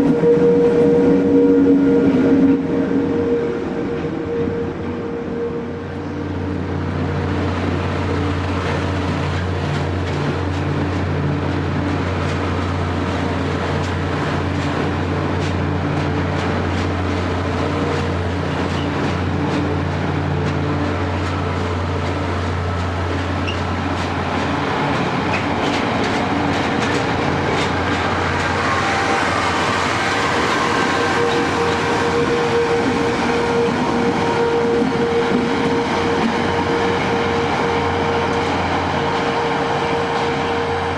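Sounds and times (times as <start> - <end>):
wheels clicking over rail joints: 8.1 - 28.6.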